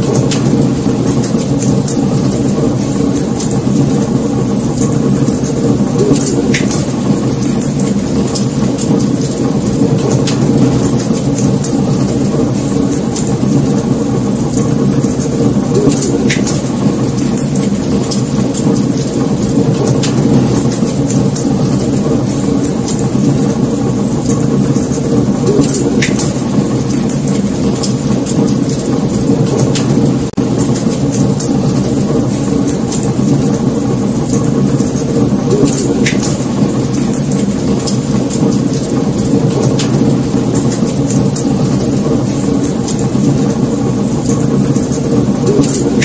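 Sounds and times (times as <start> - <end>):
fire roaring and crackling: 0.0 - 46.0.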